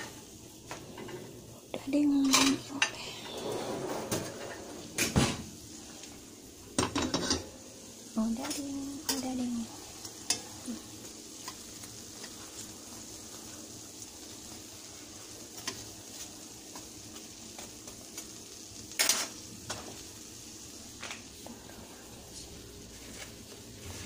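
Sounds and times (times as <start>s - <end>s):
dough sizzling in hot oil: 0.0s - 2.8s, 4.3s - 24.0s
ceramic plates clattering: 6.8s - 7.5s
tongs clicking against pan: 10.0s - 10.5s.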